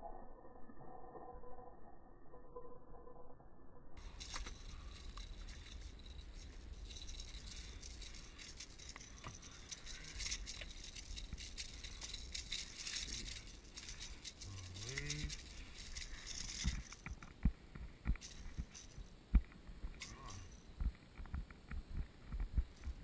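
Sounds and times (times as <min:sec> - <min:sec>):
fishing tackle rattling and clicking: 0:04.0 - 0:19.1, 0:19.9 - 0:20.6.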